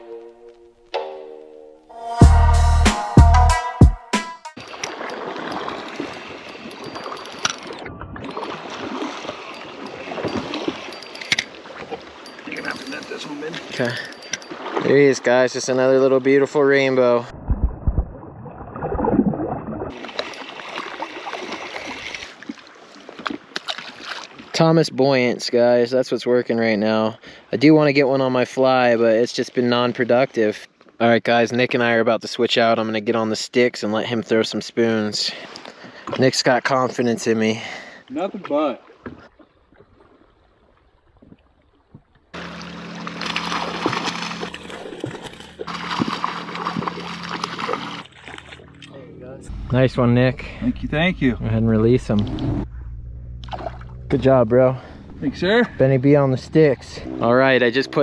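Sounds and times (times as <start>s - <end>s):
river water washing: 4.6s - 17.2s, 18.3s - 24.6s, 37.2s - 51.1s, 53.4s - 58.0s
muffled river water splashing: 4.6s - 25.8s, 34.8s - 58.0s.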